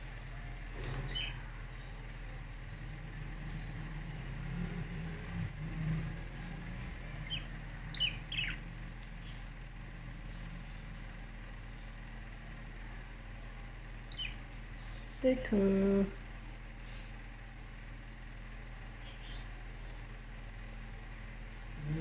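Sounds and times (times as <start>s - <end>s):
steady low hum: 0.0s - 22.0s
budgerigars chirping: 1.1s - 1.4s, 7.2s - 9.4s, 14.1s - 15.0s.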